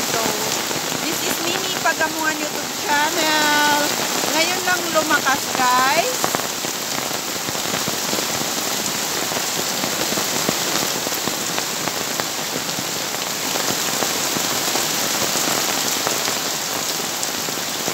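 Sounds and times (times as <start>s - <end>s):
heavy rain: 0.0s - 17.9s
runoff pouring off awning: 0.0s - 17.9s.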